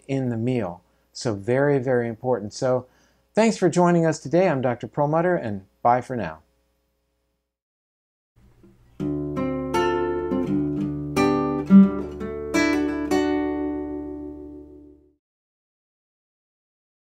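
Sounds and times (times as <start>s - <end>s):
acoustic guitar jingle: 8.4s - 15.1s.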